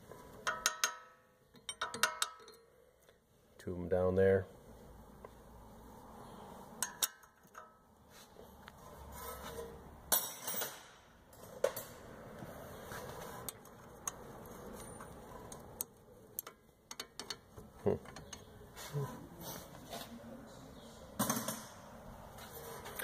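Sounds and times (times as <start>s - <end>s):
wrench clicking on metal: 0.4s - 2.6s, 16.4s - 17.5s.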